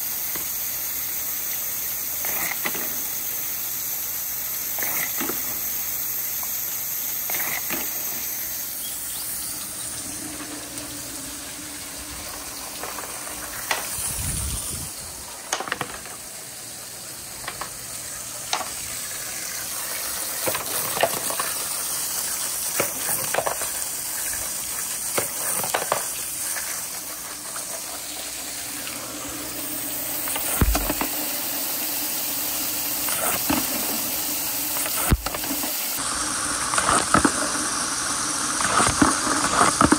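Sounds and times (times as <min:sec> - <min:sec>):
water rushing down plastic gutters: 0:09.5 - 0:39.9.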